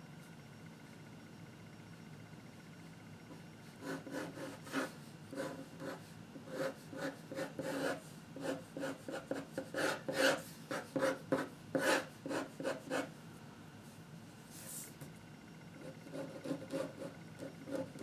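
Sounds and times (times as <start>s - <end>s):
pen scratching on paper: 3.8s - 13.1s, 16.0s - 17.1s.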